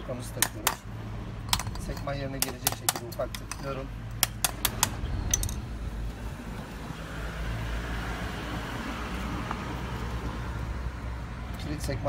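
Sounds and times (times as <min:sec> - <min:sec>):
low road traffic rumble: 0:00.0 - 0:12.0
screwdriver tapping metal: 0:00.3 - 0:00.9, 0:01.5 - 0:05.6.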